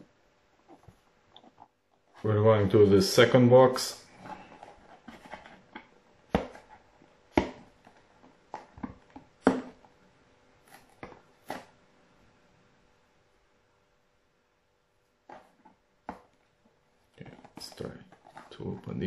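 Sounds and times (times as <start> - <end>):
cardboard rustling and scratching: 4.1 - 9.9, 10.6 - 11.8, 15.2 - 16.4, 17.2 - 19.0.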